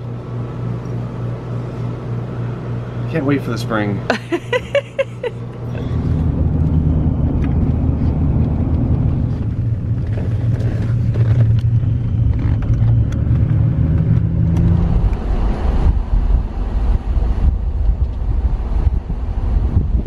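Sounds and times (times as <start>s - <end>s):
car engine and tyre noise: 5.4s - 20.0s.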